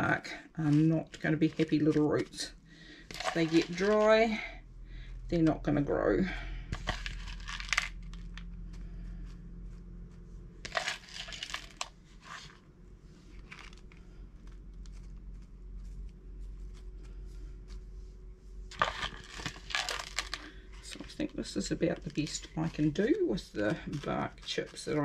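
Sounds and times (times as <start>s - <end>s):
faint low hum: 0.0s - 25.0s
bark chips rustling: 0.6s - 4.4s, 6.7s - 9.0s, 10.6s - 17.8s, 18.6s - 25.0s.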